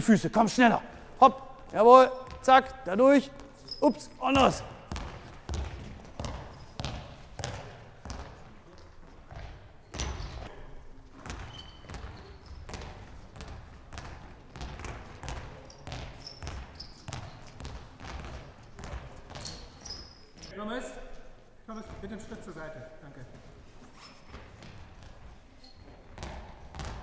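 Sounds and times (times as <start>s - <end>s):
ball bouncing on hall floor: 1.2s - 20.5s, 24.2s - 27.0s
short high squeaks: 3.6s - 4.2s, 19.4s - 20.5s.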